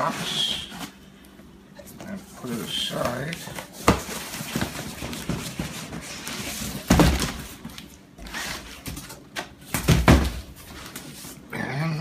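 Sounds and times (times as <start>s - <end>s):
cardboard scraping and rustling: 2.4s - 9.2s
box thunking on floor: 6.8s - 7.5s, 9.7s - 10.5s.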